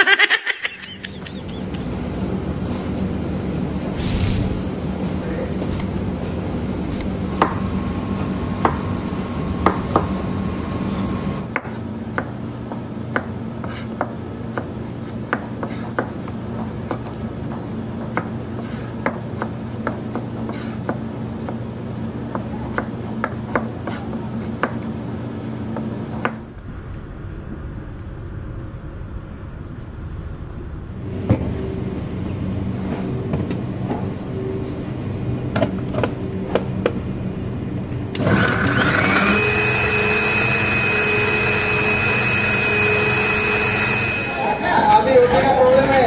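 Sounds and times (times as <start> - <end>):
low kitchen hum: 0.0 - 46.0
knife cutting on plastic board: 13.1 - 17.2, 18.0 - 21.6, 22.3 - 24.8
knife scraping potato peel: 13.6 - 14.0, 15.0 - 16.0, 18.6 - 19.5, 20.1 - 21.0.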